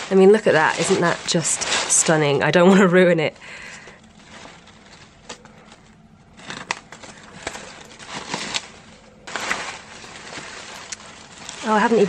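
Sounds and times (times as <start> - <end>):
paper wrapping rustling: 0.0 - 12.0.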